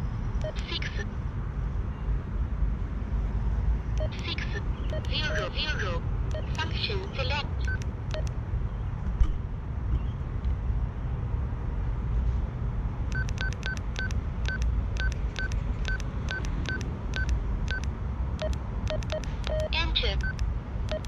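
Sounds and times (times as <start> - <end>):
radio key beeps: 0.4 - 1.0, 4.0 - 5.6, 6.3 - 8.3, 13.2 - 21.0.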